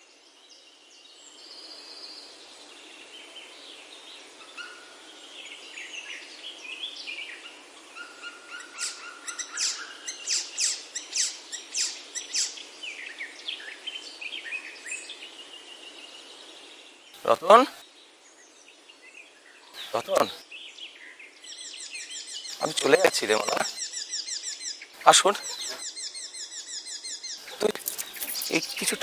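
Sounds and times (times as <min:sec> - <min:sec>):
faint outdoor hiss: 0:00.0 - 0:29.0
birds chirping and whistling: 0:08.0 - 0:13.0, 0:19.8 - 0:20.4, 0:21.5 - 0:29.0.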